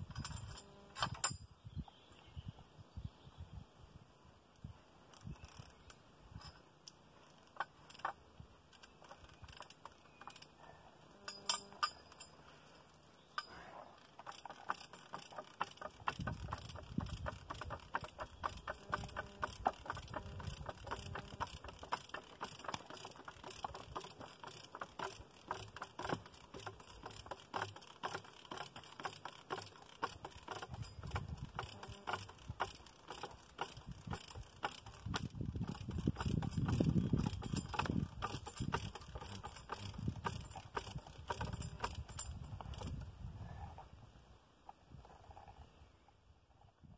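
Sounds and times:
ratchet clicking: 5.1 - 6.6, 7.2 - 10.6, 11.2 - 43.1.

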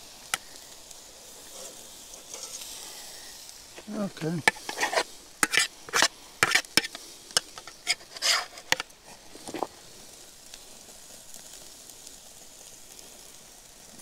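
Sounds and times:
burgers sizzling: 0.0 - 14.0
utensil scraping metal grill grate: 0.2 - 10.1.

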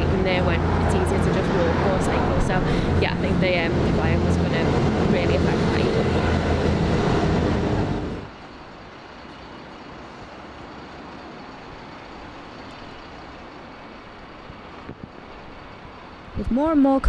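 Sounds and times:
loud low rumble: 0.0 - 8.5
city road traffic: 0.0 - 17.0.

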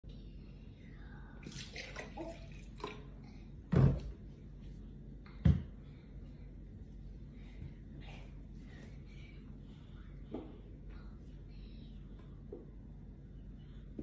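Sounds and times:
juice pouring and splashing: 1.4 - 3.2.

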